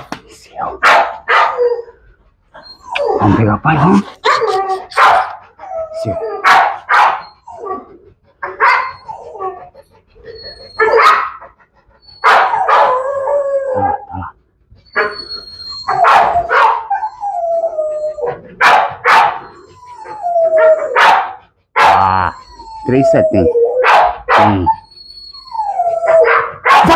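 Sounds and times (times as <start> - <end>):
dog whining and howling: 0.6 - 26.9
dog barking: 0.8 - 1.6, 4.9 - 5.4, 6.4 - 7.3, 8.4 - 9.0, 10.8 - 11.4, 12.2 - 13.0, 15.9 - 16.9, 18.6 - 19.5, 21.0 - 22.1, 23.8 - 24.7, 26.2 - 26.9.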